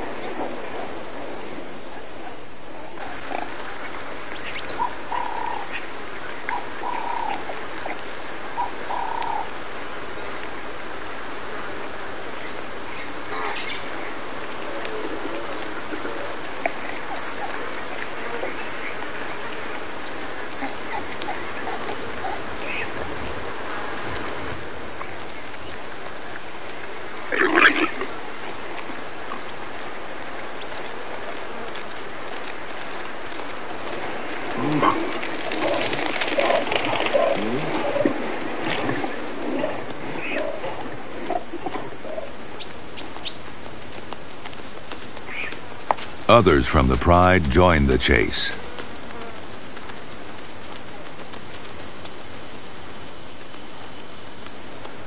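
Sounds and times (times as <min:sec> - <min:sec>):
marsh wildlife chorus: 0:01.8 - 0:09.5.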